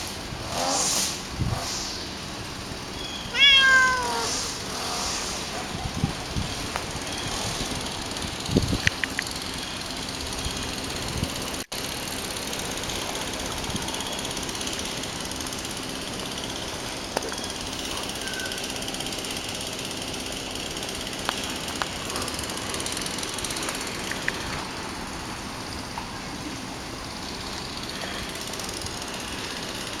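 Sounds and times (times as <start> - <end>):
hiss: 0.0 - 2.8, 3.8 - 8.1, 27.1 - 30.0
low mechanical hum: 0.0 - 30.0.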